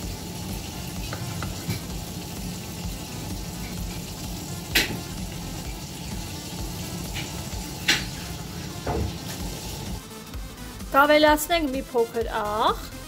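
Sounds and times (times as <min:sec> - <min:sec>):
mushrooms sizzling in frying pan: 0:00.0 - 0:10.1.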